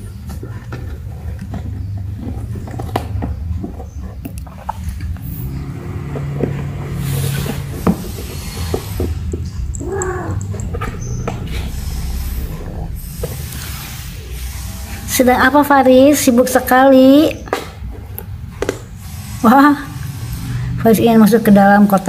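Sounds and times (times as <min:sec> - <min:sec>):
kittens scratching cardboard box: 0:00.0 - 0:12.5
kitten meow: 0:09.8 - 0:10.6.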